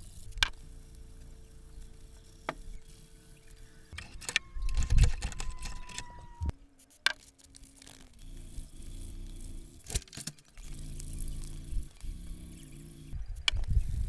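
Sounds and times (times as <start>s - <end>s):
sharp metallic clicks: 3.9s - 6.2s.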